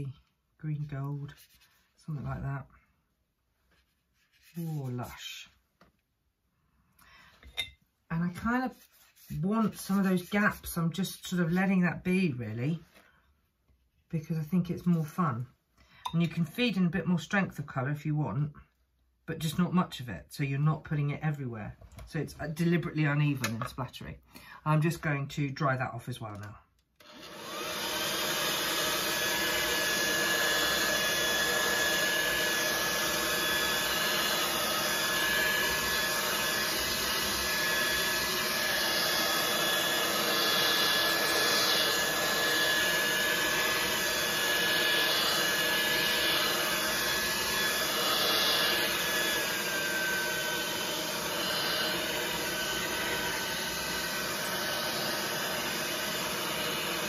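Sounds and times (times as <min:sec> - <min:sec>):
hair dryer blowing: 0:08.4 - 0:12.2, 0:27.0 - 0:57.0.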